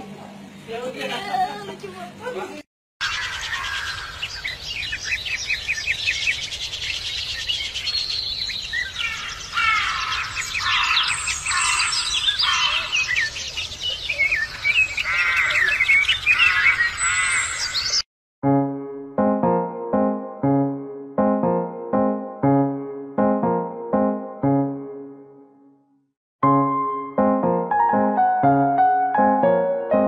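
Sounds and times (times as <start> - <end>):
small birds chirping and twittering: 3.0 - 18.0.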